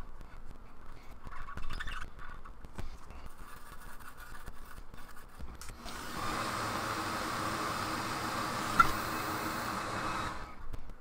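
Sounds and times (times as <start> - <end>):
brush scrubbing a circuit board: 1.2 - 5.5.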